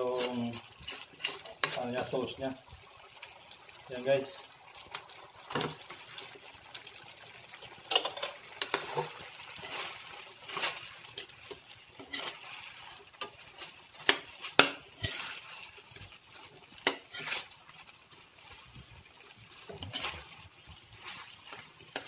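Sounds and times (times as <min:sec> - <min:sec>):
metal spatula scraping a wok: 0:00.1 - 0:02.1, 0:07.9 - 0:17.7, 0:19.5 - 0:22.0.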